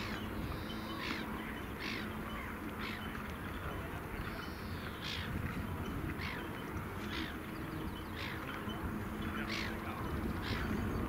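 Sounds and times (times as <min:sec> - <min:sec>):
low rumble of wind: 0:00.0 - 0:11.0.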